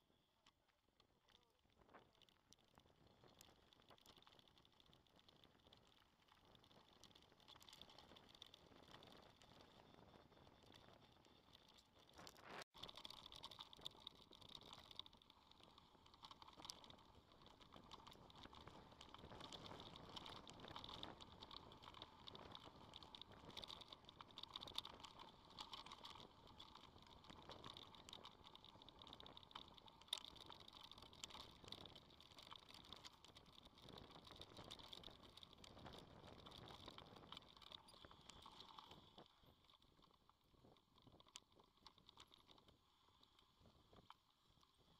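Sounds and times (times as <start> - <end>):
bike rattling over dirt track: 12.0 - 38.9.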